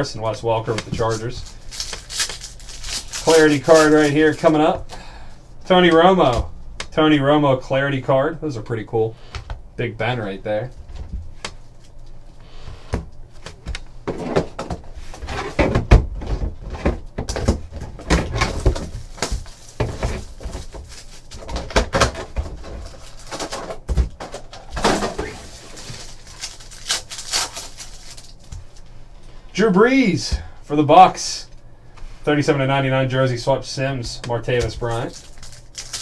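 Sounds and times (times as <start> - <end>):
plastic wrapping crinkling: 0.9 - 4.7, 18.2 - 28.8, 34.8 - 36.0
foil pack tearing: 1.0 - 4.5, 24.7 - 28.4, 34.9 - 36.0.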